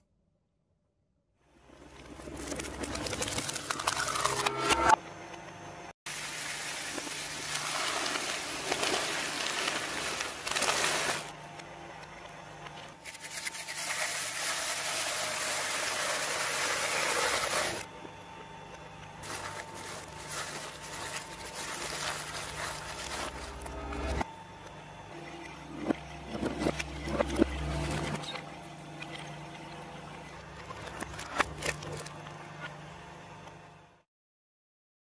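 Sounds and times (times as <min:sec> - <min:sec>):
motor hum: 0:01.5 - 0:34.0
shredder grinding material: 0:06.1 - 0:12.1, 0:12.8 - 0:24.3, 0:25.1 - 0:33.0.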